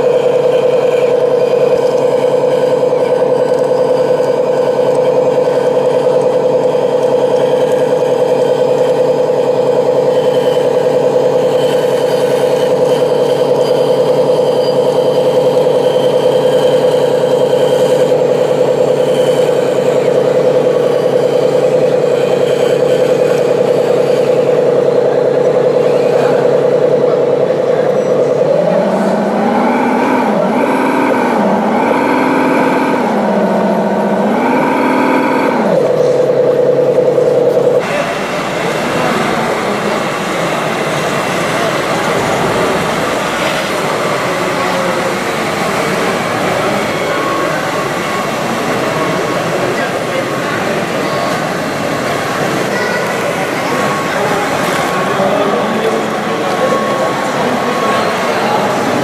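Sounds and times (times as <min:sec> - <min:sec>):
high motor whine: 0:00.0 - 0:59.0
lower whine rising and falling: 0:15.3 - 0:50.7.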